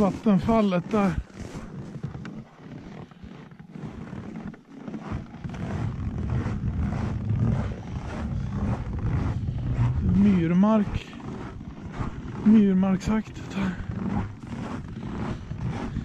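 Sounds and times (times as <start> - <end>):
wind buffeting microphone: 5.6 - 16.0.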